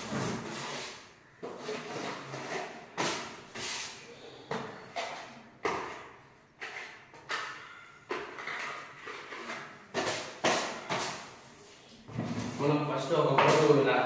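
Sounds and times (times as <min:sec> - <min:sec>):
putty blade scraping wall: 0:00.0 - 0:04.1, 0:06.6 - 0:11.4.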